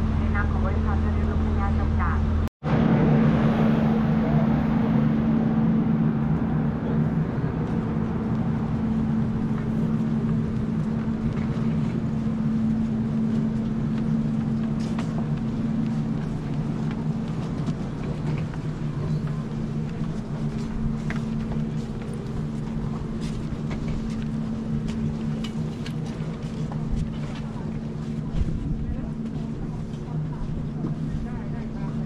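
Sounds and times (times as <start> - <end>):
vehicle engine drone: 0.0 - 32.0
rushing noise: 2.6 - 24.0.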